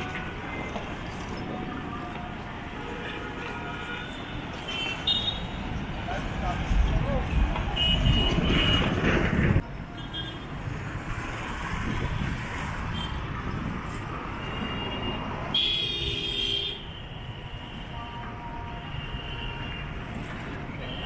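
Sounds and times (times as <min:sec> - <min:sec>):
motorbikes and cars passing: 0:03.4 - 0:15.6
vehicle horn: 0:14.6 - 0:17.0.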